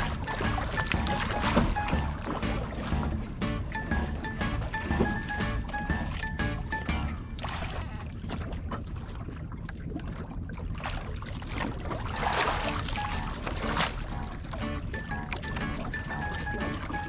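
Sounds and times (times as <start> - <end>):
water rushing: 0.0 - 8.6, 11.4 - 17.0
wind: 0.0 - 17.0
knocks on boat: 0.1 - 3.5.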